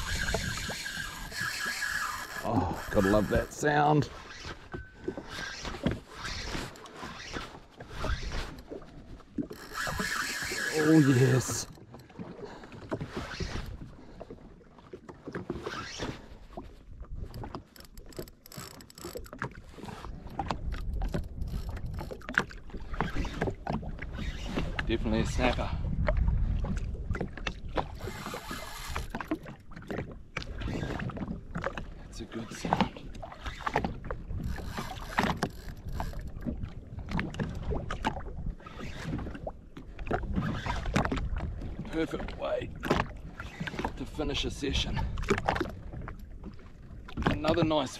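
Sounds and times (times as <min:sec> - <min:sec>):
wind rumbling on microphone: 0:00.0 - 0:06.7, 0:15.6 - 0:47.6
fishing reel drag clicking: 0:00.0 - 0:07.4, 0:09.5 - 0:11.8, 0:17.3 - 0:19.4, 0:21.1 - 0:22.2, 0:27.9 - 0:29.2, 0:33.6 - 0:36.4
small waves lapping against hull: 0:00.0 - 0:47.9.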